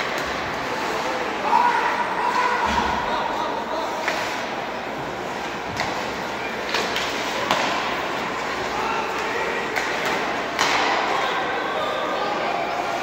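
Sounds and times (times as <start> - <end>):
hockey sticks and puck knocking: 5.7 - 11.2.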